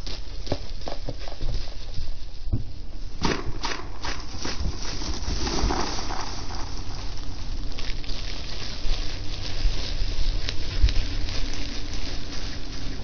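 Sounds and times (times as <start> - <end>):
low thumps on microphone: 2.4 - 6.0.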